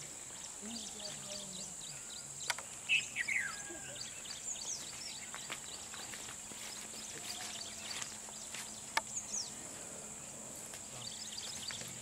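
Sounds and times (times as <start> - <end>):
bird chirps: 0.0 - 12.0.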